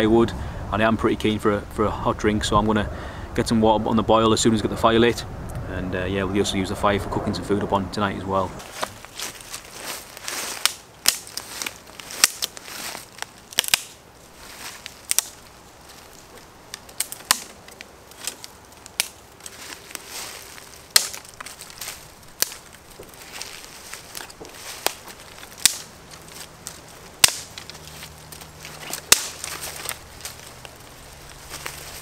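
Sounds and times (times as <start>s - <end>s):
twigs rustling: 8.6s - 32.0s
twigs snapping: 8.6s - 32.0s.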